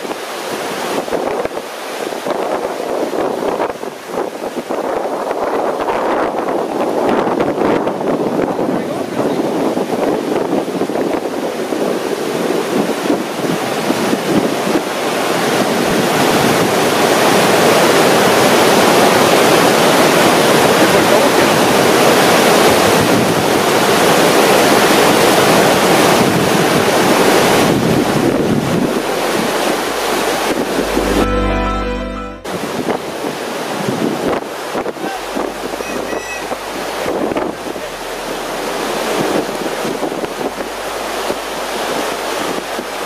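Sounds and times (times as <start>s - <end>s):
wind noise on microphone: 0.0s - 31.2s, 32.4s - 43.0s
whitewater rushing: 0.0s - 31.6s, 32.5s - 43.0s.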